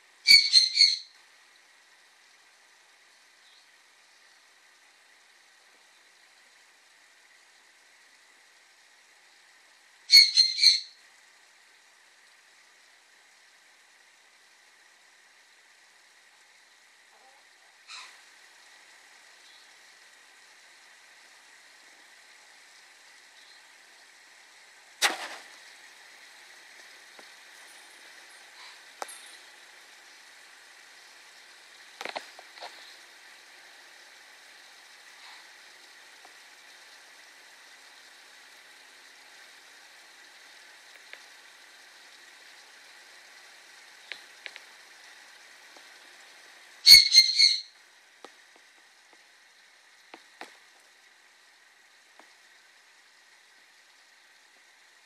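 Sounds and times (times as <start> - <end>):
steady low hiss: 0.0 - 55.0
bird squawking: 0.3 - 1.1, 10.1 - 11.0, 17.9 - 18.2, 46.8 - 47.7
faint clicks: 31.9 - 33.1, 40.9 - 41.3, 44.0 - 44.7.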